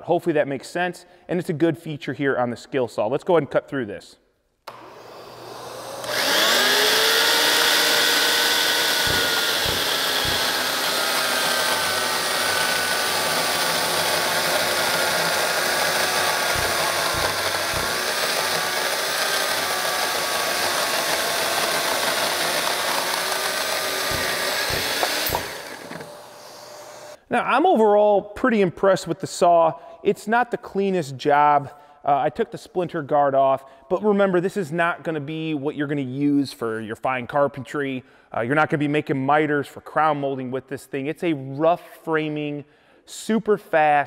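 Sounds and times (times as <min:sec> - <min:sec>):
electric chainsaw cutting timber: 0:04.7 - 0:27.2.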